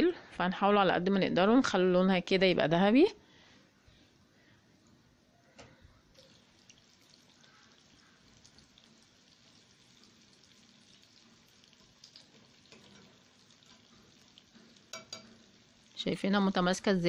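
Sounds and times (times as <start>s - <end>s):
food sizzling in oil: 6.2s - 17.0s.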